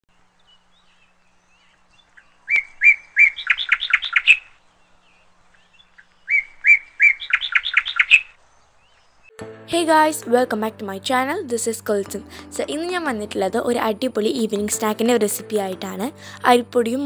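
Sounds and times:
songbird whistling and trilling: 0:00.8 - 0:04.6, 0:05.6 - 0:09.4.

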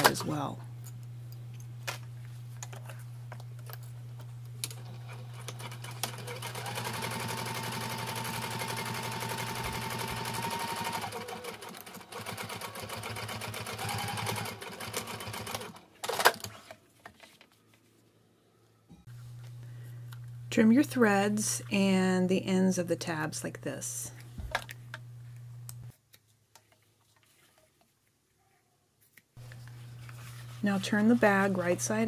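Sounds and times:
sewing machine stitching: 0:04.7 - 0:16.7.

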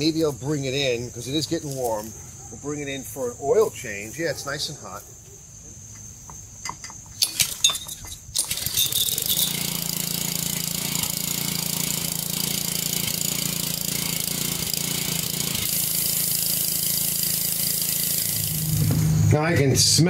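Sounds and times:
pressure washer engine running: 0:08.4 - 0:19.9.

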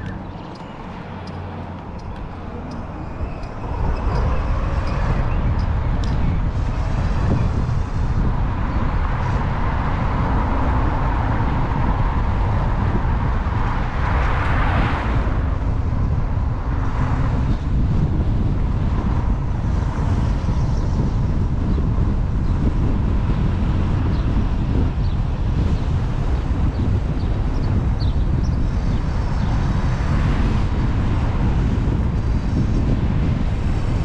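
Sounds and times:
wind rush and road noise: 0:00.0 - 0:34.0.

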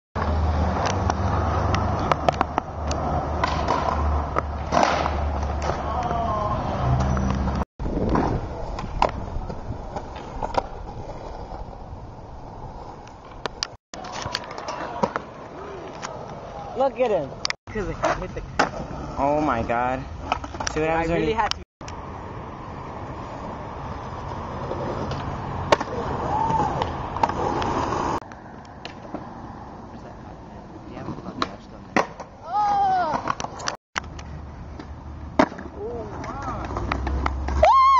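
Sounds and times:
faint street noise: 0:00.2 - 0:37.9
skateboard wheels rolling on concrete: 0:00.2 - 0:37.9
skateboard clacks: 0:00.8 - 0:06.2, 0:31.4 - 0:37.6.

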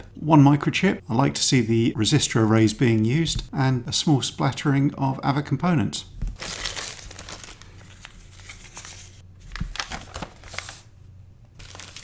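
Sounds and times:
paper being unfolded: 0:06.4 - 0:10.9, 0:11.6 - 0:12.0
plastic bag crinkling: 0:06.4 - 0:10.9, 0:11.6 - 0:12.0.

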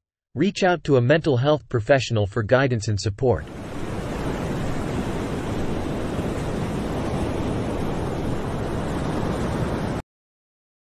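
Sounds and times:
steady rushing noise: 0:03.4 - 0:10.0.

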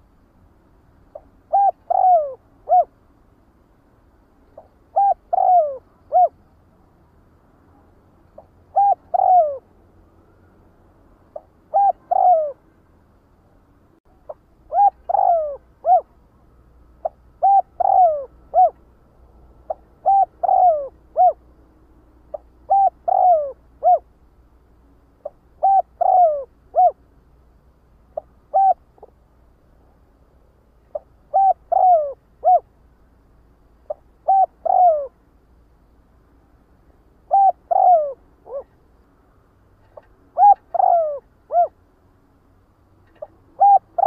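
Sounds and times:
dove cooing: 0:01.1 - 0:03.0, 0:04.6 - 0:06.4, 0:08.4 - 0:09.7, 0:11.3 - 0:12.6, 0:14.3 - 0:16.2, 0:17.0 - 0:18.8, 0:19.6 - 0:21.5, 0:22.3 - 0:24.1, 0:25.2 - 0:27.0, 0:28.2 - 0:29.2, 0:30.9 - 0:32.7, 0:33.9 - 0:35.2, 0:37.2 - 0:38.8, 0:40.0 - 0:41.8, 0:43.1 - 0:44.0.

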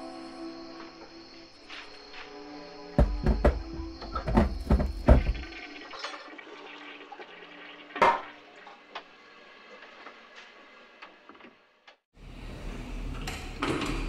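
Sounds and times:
heavy thumps: 0:03.0 - 0:05.6.

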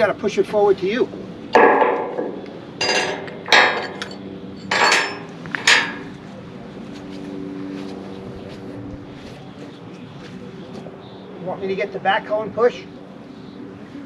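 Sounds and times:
metal strikes on steel beam: 0:01.5 - 0:06.1.

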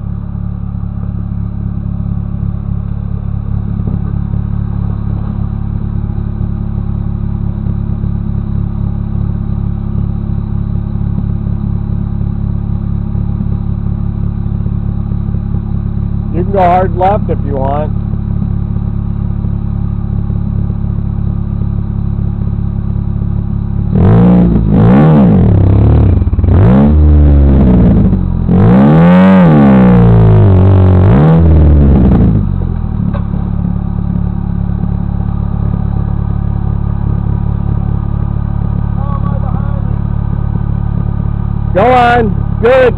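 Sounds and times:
buggy engine idling and revving: 0:00.0 - 0:42.9.

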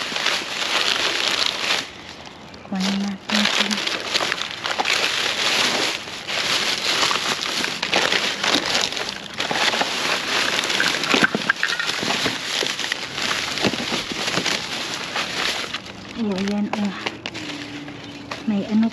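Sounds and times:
packaging and bottles crackling: 0:00.0 - 0:18.9
plastic bags crinkling: 0:00.0 - 0:18.9.

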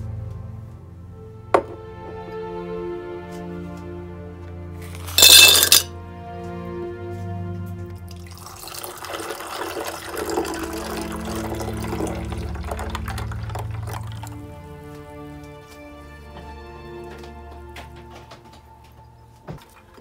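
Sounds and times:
soft background music: 0:00.0 - 0:20.0
drink pouring over ice: 0:05.0 - 0:05.9, 0:08.1 - 0:14.4.

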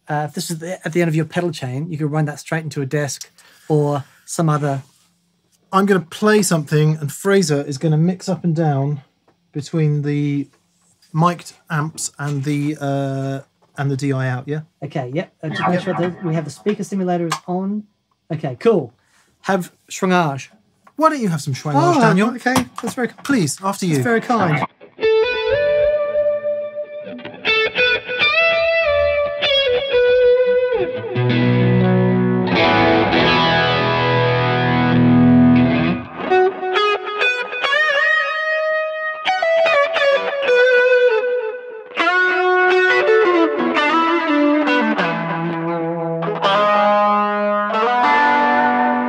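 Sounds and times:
electric guitar with drive: 0:15.4 - 0:17.5, 0:24.0 - 0:49.0.

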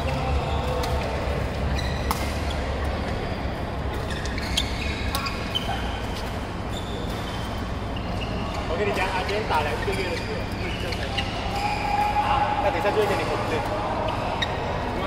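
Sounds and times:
background murmur: 0:00.0 - 0:15.0
ball impacts in a hall: 0:00.0 - 0:15.0
short high squeaks: 0:06.7 - 0:12.1.

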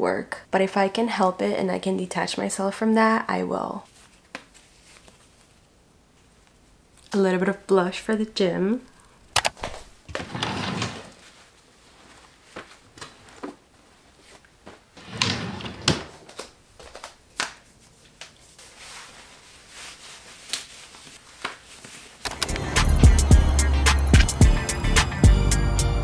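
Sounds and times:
dresser drawer sliding shut: 0:10.1 - 0:11.1, 0:15.0 - 0:16.2.

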